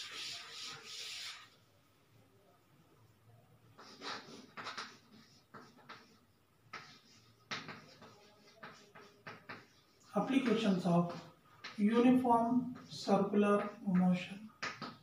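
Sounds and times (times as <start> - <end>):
chalk scratching on chalkboard: 0.0 - 1.6, 3.8 - 12.0, 12.7 - 13.8.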